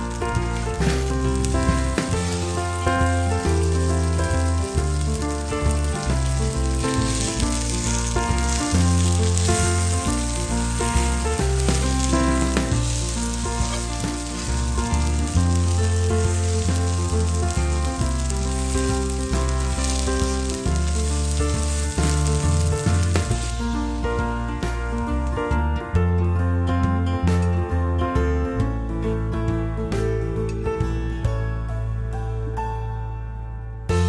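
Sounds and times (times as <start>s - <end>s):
food sizzling in oil: 0.0s - 25.4s
background music with bass line: 0.0s - 34.0s.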